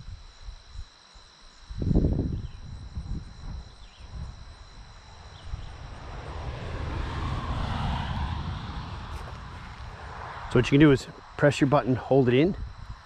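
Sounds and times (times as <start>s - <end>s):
high insect drone: 0.0s - 13.0s
wind buffeting microphone: 1.8s - 13.0s
vehicle approaching on road: 4.8s - 11.8s.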